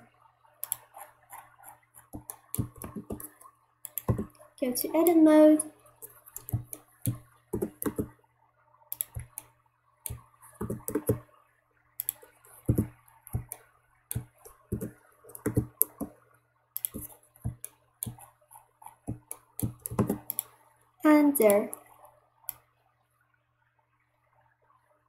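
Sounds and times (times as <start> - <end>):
faint low hum: 0.0 - 25.0
mouse and keyboard clicks: 0.6 - 4.4, 6.0 - 8.1, 8.9 - 9.5, 10.1 - 11.2, 12.0 - 16.1, 16.8 - 20.6.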